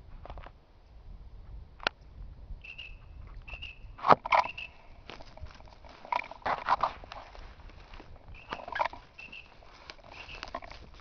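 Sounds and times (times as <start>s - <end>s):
twigs snapping: 4.0s - 11.0s
footsteps crunching through leaves: 5.0s - 11.0s.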